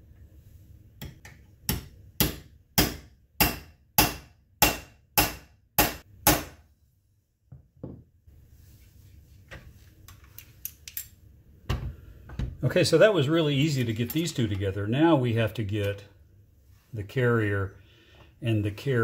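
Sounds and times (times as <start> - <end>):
faint clicks of parts handled: 9.5 - 11.2.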